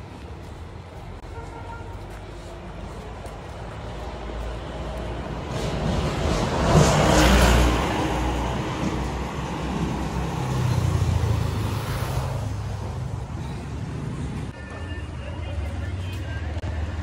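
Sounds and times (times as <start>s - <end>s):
low engine rumble of traffic: 0.0s - 17.0s
vehicle passing close by: 3.8s - 14.5s.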